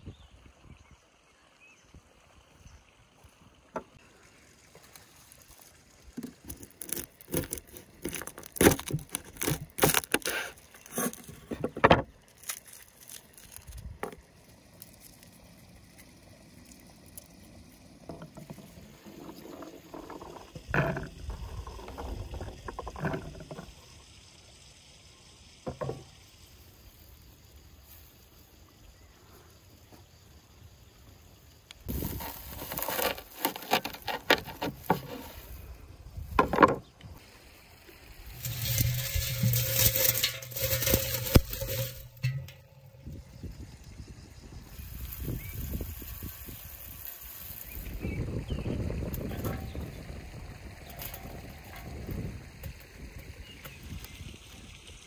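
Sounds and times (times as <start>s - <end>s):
garlic skins crackling: 4.9s - 17.9s, 31.9s - 35.7s, 38.3s - 43.2s, 44.8s - 48.2s
dried herbs rustling: 12.2s - 15.8s, 31.9s - 35.6s, 38.3s - 42.6s, 44.8s - 48.0s.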